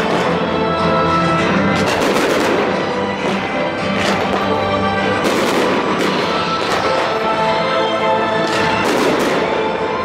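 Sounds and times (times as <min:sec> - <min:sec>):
music playing: 0:00.0 - 0:10.0
firework bangs: 0:01.6 - 0:07.4, 0:08.4 - 0:10.0.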